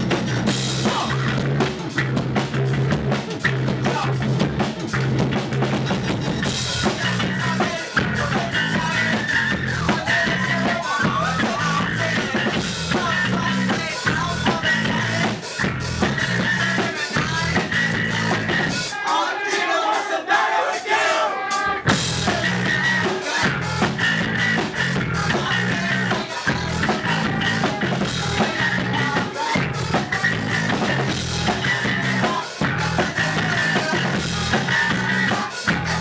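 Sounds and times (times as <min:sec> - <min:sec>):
rock band playing: 0:00.0 - 0:36.0
drum kit hitting hard: 0:21.5 - 0:36.0.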